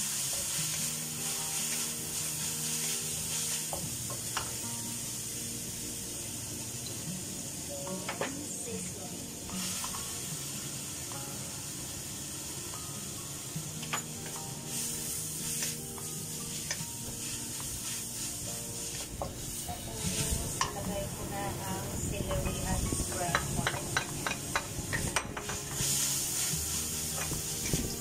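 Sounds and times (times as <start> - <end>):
food sizzling in oil: 0.0 - 28.0
wooden spatula scraping wok: 14.7 - 20.8, 25.4 - 28.0
spatula knocking on metal: 22.3 - 25.6.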